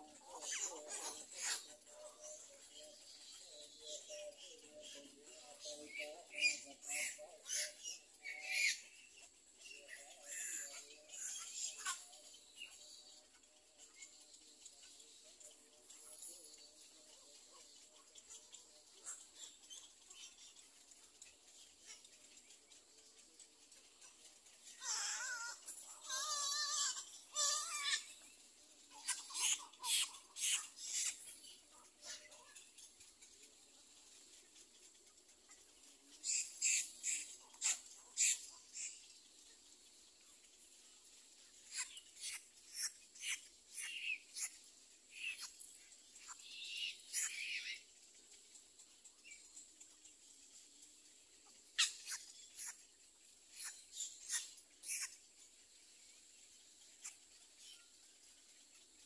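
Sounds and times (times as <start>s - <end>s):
bird chicks calling: 23.9s - 33.2s, 41.6s - 47.9s, 53.5s - 55.2s.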